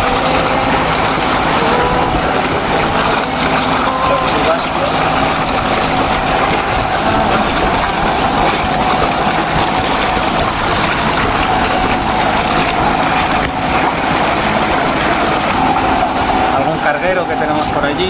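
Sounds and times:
diesel engine running: 0.0 - 18.0
hiss of wind and water: 0.0 - 18.0.

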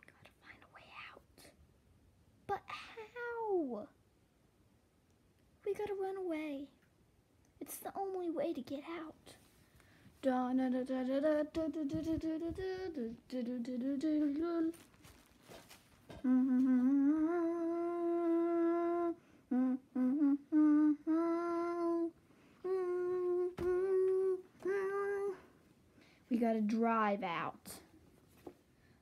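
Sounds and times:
child humming a tune: 10.7 - 14.9, 16.1 - 25.5.

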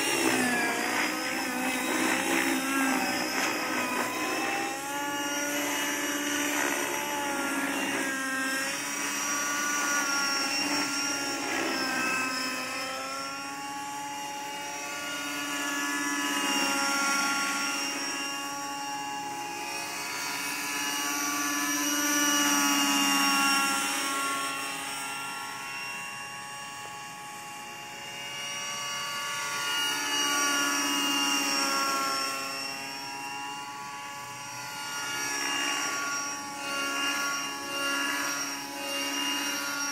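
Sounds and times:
remote control helicopter whine: 0.0 - 39.9.

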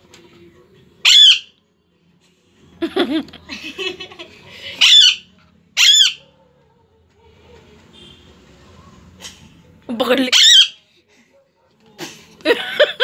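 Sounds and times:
harsh chattering squawks: 1.0 - 1.6, 4.6 - 6.4, 10.2 - 10.9
parakeet screeching: 1.0 - 1.6, 4.7 - 6.4, 10.2 - 10.8.

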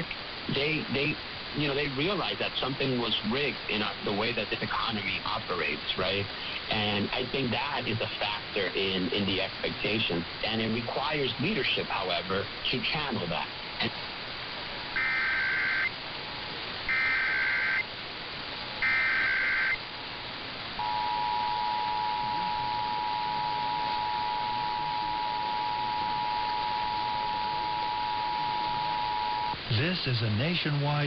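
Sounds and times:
radio reception hiss: 0.0 - 31.0
warbling data tone bursts: 14.9 - 16.0, 16.9 - 17.9, 18.7 - 19.9, 20.8 - 29.7
two-tone attention signal: 16.9 - 17.8, 18.8 - 19.8, 20.8 - 29.6.

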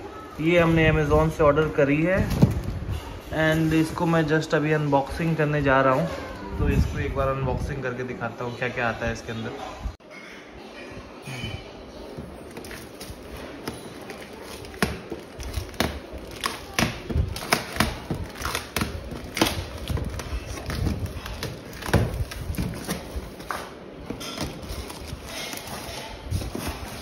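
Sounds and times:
packing tape ripping: 12.5 - 23.5.

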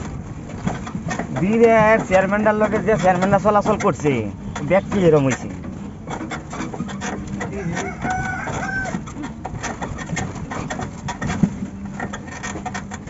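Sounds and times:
auto-rickshaw engine hum and rattling: 0.0 - 13.0
rooster crowing: 7.5 - 9.2.

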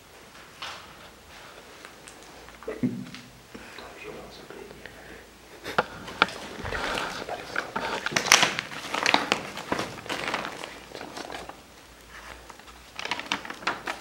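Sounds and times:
paper sheets rustling: 5.7 - 14.0.

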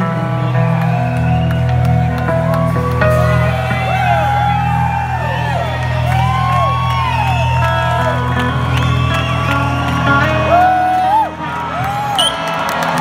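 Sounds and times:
crowd whooping: 0.0 - 13.0
low bass: 0.0 - 13.0.

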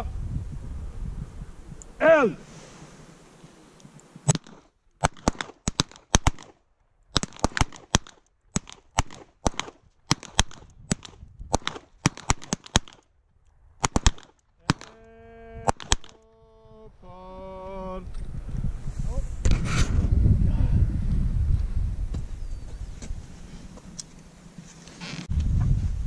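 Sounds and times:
revolver gunshots: 4.3 - 6.6, 7.2 - 13.0, 13.8 - 15.0, 15.6 - 16.2.

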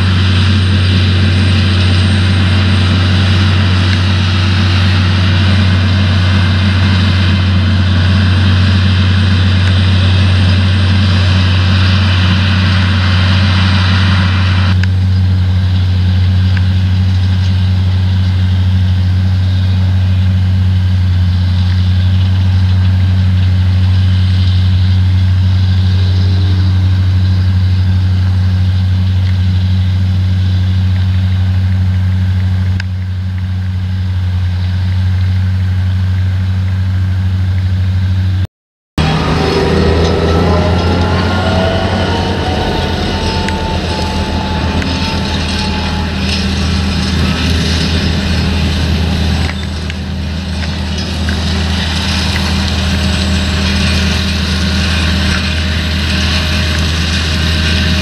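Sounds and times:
machinery clatter: 0.0 - 38.4, 39.0 - 58.0
diesel engine drone: 0.0 - 58.0.

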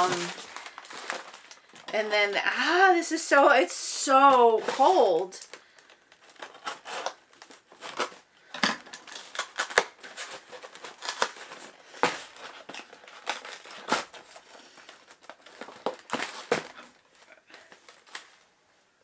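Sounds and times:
cardboard scraping and ripping: 6.3 - 8.2, 9.1 - 14.6, 15.3 - 17.0.

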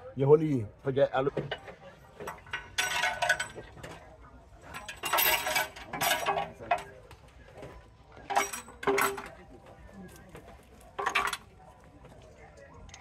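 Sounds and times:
metal tools clinking: 1.4 - 9.5, 10.6 - 11.6.

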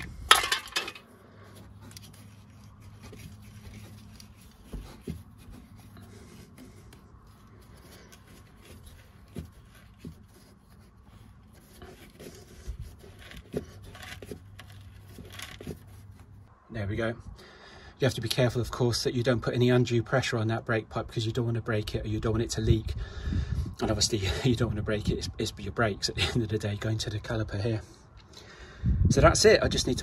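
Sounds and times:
hand rubbing rubber sleeving on pipe: 1.0 - 16.5.

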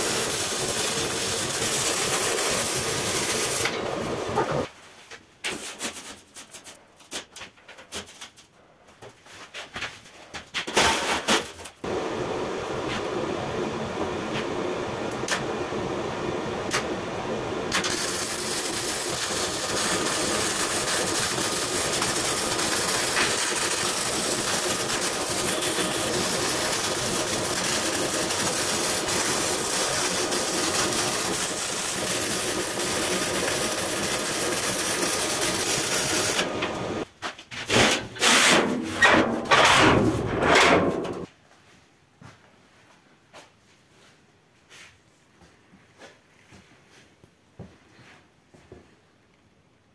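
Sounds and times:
arc welding crackling hiss: 0.0 - 4.7, 11.8 - 37.1.

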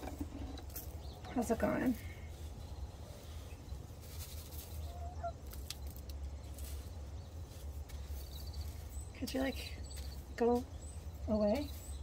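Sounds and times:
hen calling softly: 4.8 - 5.5.

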